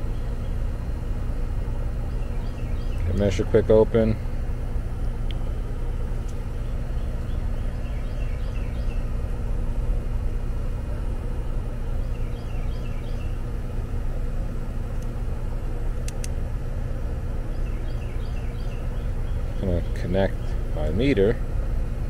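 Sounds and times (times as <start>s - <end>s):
air conditioner unit humming: 0.0s - 22.0s
sharp clicks: 16.0s - 16.4s.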